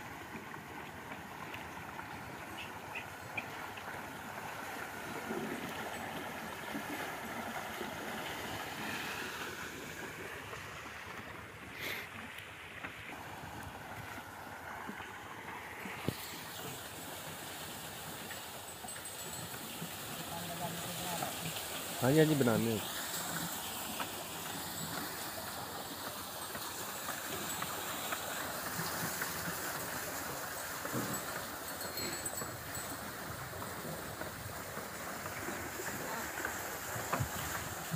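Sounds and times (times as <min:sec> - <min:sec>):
water splashing and pouring: 0:13.1 - 0:37.9
chain clanking and rattling: 0:18.7 - 0:19.7, 0:30.8 - 0:34.1.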